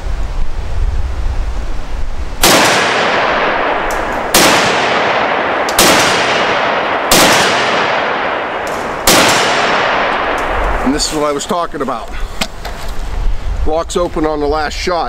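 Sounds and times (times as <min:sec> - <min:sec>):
rifle shots with echo: 0:02.4 - 0:11.6.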